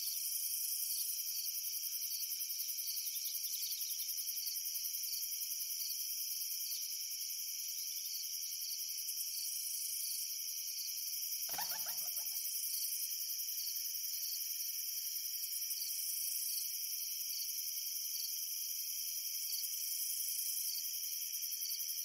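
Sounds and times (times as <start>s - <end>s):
crickets trilling: 11.3s - 12.9s.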